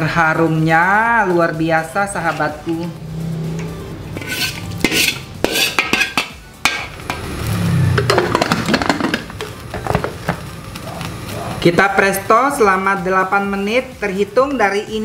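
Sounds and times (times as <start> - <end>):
metal ladle scraping pots: 4.0 - 10.1
metal lid twisting and scraping: 4.2 - 6.9.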